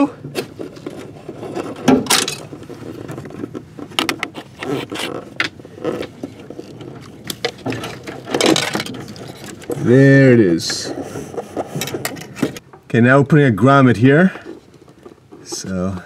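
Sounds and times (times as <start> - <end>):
wire scraping and rustling: 0.0 - 12.6
clicks and knocks: 7.0 - 9.8.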